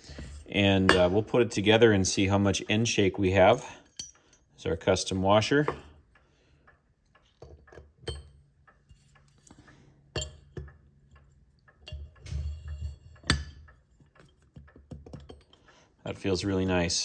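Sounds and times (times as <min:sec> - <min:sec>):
metal clock parts clinking: 0:02.8 - 0:05.9, 0:06.8 - 0:17.0.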